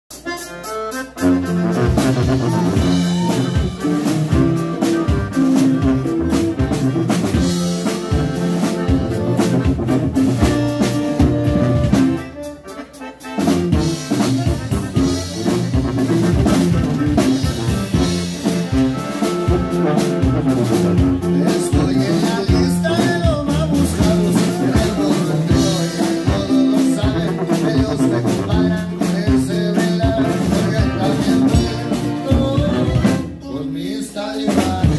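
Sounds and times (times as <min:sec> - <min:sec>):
acoustic guitar: 0:00.1 - 0:34.9
button accordion: 0:00.1 - 0:34.9
tuba: 0:00.1 - 0:34.9.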